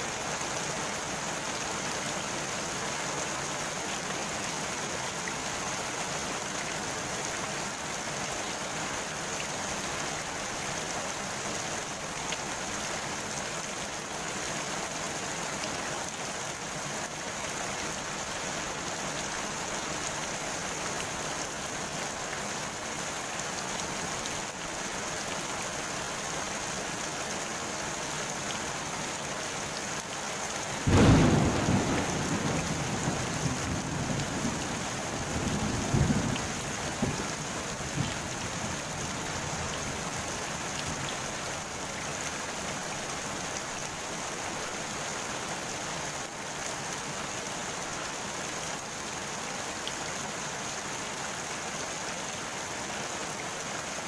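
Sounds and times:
rain on a pond: 0.0s - 54.0s
thunder clap: 30.9s - 34.6s.

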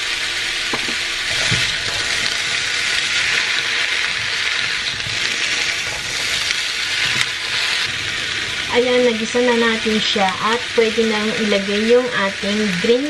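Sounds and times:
food sizzling in frying pan: 0.0s - 13.0s
spatula scraping pan: 0.8s - 8.8s.

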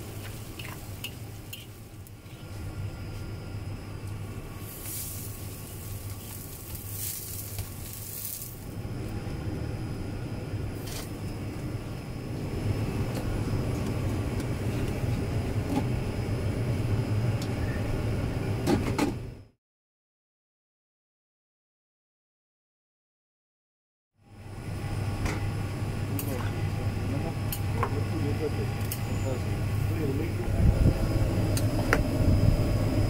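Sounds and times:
low rumble of kitchen equipment: 0.0s - 19.5s, 24.2s - 33.0s
rice stirred in steel wok: 4.6s - 8.6s.

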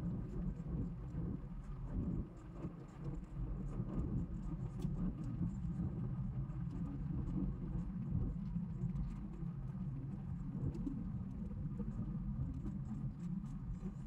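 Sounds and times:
faint light ticks: 10.7s - 14.0s.

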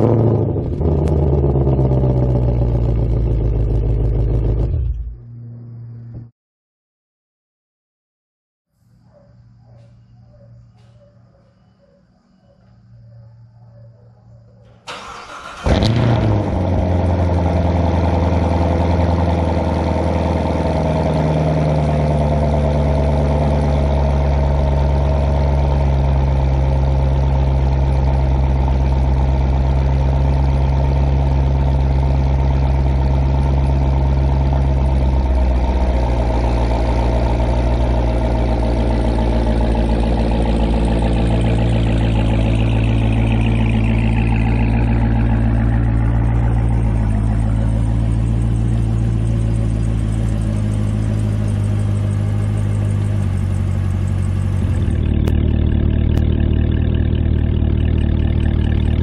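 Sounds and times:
car engine revving and idling: 0.0s - 6.3s, 14.9s - 59.0s
engine cranking: 14.7s - 16.6s.

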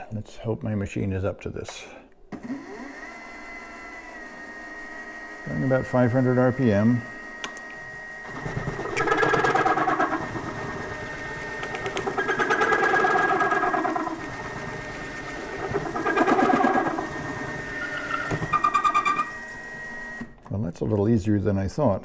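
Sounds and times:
mill machine running quietly: 2.3s - 21.1s
drill rattling through metal: 8.2s - 20.4s.

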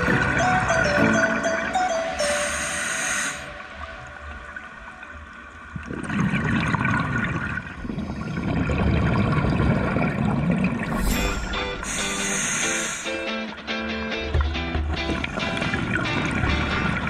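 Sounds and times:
underwater bubbles gurgling: 3.8s - 13.1s.

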